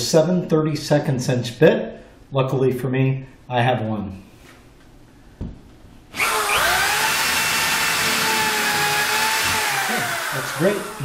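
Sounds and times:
power drill whining: 0:06.1 - 0:11.0.

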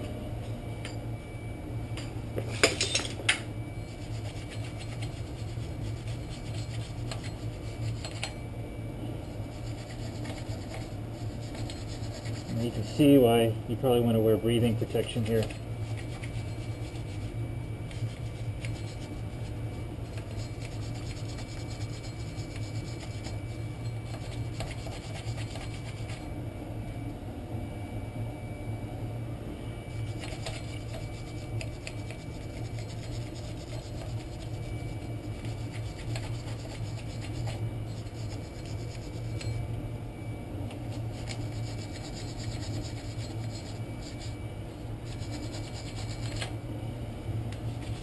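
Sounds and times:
steady low hum: 0:00.0 - 0:48.0
wire brush scrubbing metal: 0:03.8 - 0:08.4, 0:09.5 - 0:13.3, 0:14.1 - 0:26.3, 0:30.0 - 0:39.6, 0:40.8 - 0:44.4, 0:45.0 - 0:46.5.

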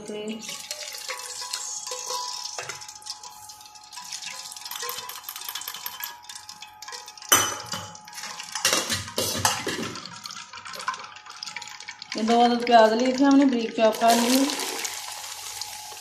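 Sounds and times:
metal utensils clinking on a pan: 0:00.0 - 0:11.1.

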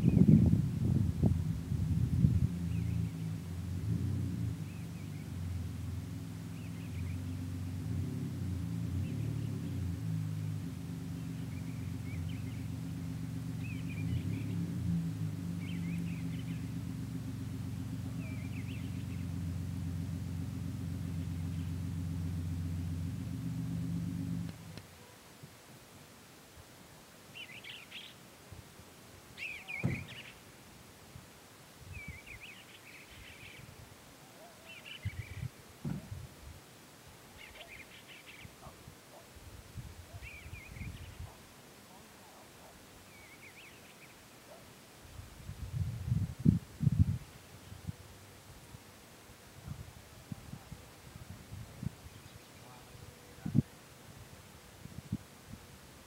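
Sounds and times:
wind buffeting microphone: 0:00.0 - 0:05.3, 0:35.0 - 0:36.6, 0:45.2 - 0:48.1, 0:49.6 - 0:52.4, 0:53.4 - 0:53.7
idling engine hum: 0:00.0 - 0:25.2, 0:26.1 - 0:56.0
bird chirps: 0:06.4 - 0:07.5, 0:08.9 - 0:12.9, 0:13.5 - 0:14.7, 0:15.5 - 0:16.8, 0:18.0 - 0:19.4, 0:27.4 - 0:28.2, 0:29.4 - 0:30.4, 0:34.4 - 0:35.5, 0:37.4 - 0:38.7, 0:40.1 - 0:41.4, 0:43.1 - 0:44.6.

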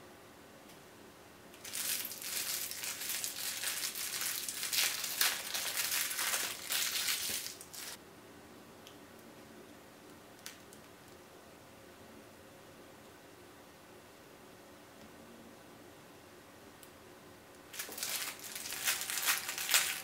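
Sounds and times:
plastic wrapper crinkling: 0:01.6 - 0:08.0, 0:17.7 - 0:20.0.

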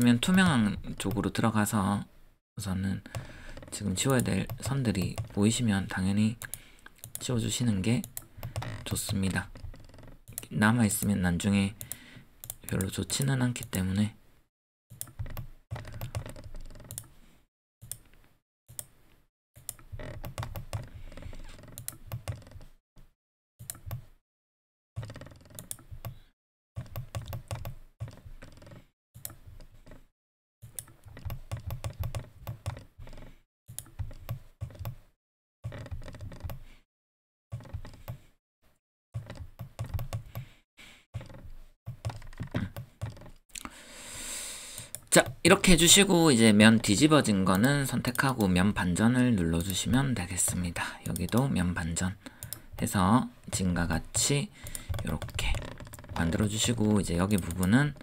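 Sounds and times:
mouse and keyboard clicking: 0:15.0 - 0:17.1, 0:26.8 - 0:30.0, 0:30.7 - 0:35.0, 0:52.4 - 0:52.6, 0:54.6 - 0:58.0.

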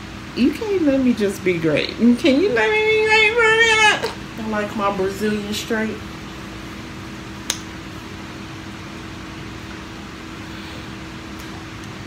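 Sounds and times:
background hum and hiss: 0:00.0 - 0:12.0
sharp click: 0:07.5 - 0:07.7.

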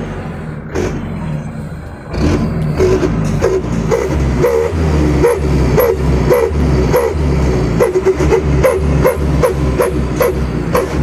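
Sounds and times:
dog barking: 0:07.8 - 0:11.0.

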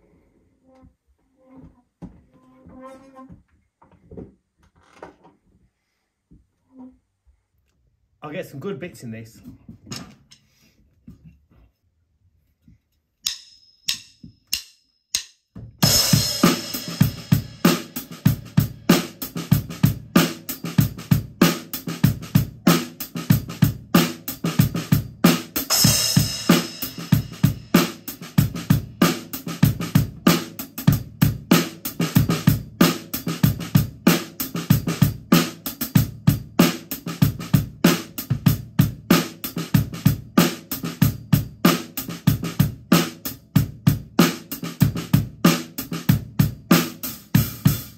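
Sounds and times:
drum kit groove: 0:13.2 - 0:47.9.

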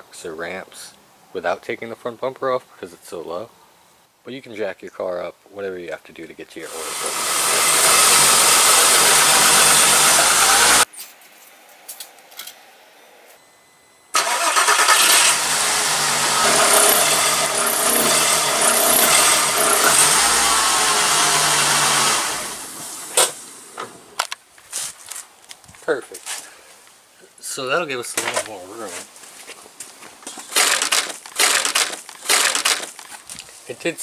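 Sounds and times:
car engine revving: 0:07.4 - 0:10.8, 0:14.2 - 0:22.8.

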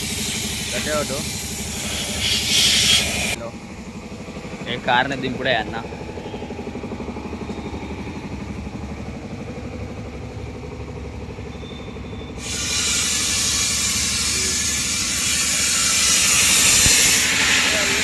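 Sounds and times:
compressed air hissing: 0:00.0 - 0:03.4, 0:12.4 - 0:18.0
fast-pulsing mechanical hum: 0:00.0 - 0:18.0.

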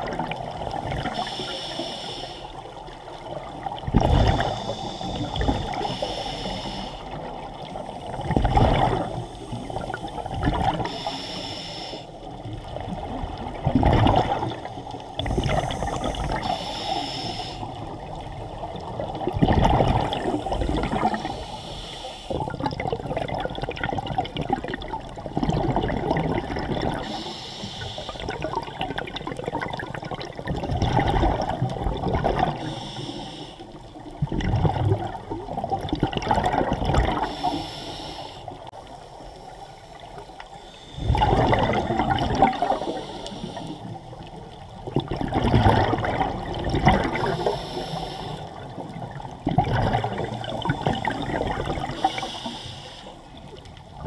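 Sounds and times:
exhaled bubbles gushing: 0:00.0 - 0:01.3, 0:03.1 - 0:06.0, 0:07.2 - 0:11.0, 0:12.6 - 0:16.7, 0:17.8 - 0:21.5, 0:22.3 - 0:27.2, 0:28.2 - 0:32.7, 0:34.1 - 0:37.4, 0:41.0 - 0:43.0, 0:43.8 - 0:47.6, 0:48.5 - 0:52.3
regulator inhalation hiss: 0:01.2 - 0:02.6, 0:04.4 - 0:07.3, 0:09.2 - 0:12.2, 0:14.9 - 0:17.9, 0:20.0 - 0:22.4, 0:27.0 - 0:28.3, 0:32.6 - 0:33.8, 0:37.2 - 0:38.6, 0:42.6 - 0:43.9, 0:47.2 - 0:48.6, 0:52.0 - 0:53.3.

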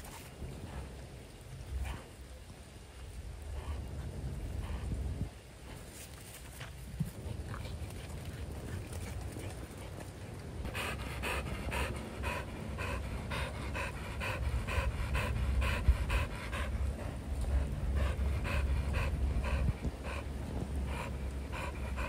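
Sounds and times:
dog panting fast: 0:07.2 - 0:22.0.

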